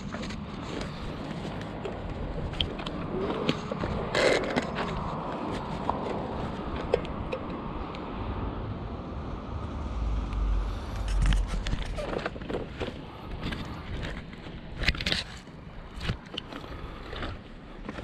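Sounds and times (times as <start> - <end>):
motor vehicle running: 0.0 - 8.3, 8.9 - 18.0
low rumble: 8.4 - 12.3
scraping rustle: 10.9 - 18.0.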